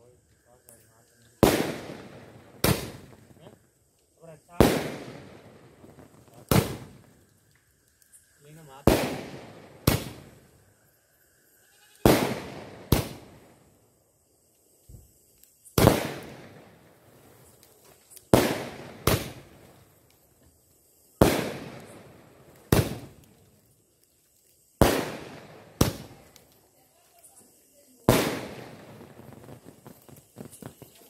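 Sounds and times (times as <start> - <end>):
fireworks bangs with echo: 1.4 - 3.5, 4.5 - 7.1, 8.6 - 10.4, 12.0 - 13.4, 15.8 - 16.8, 18.3 - 19.6, 21.2 - 23.2, 24.8 - 26.2, 28.0 - 31.0.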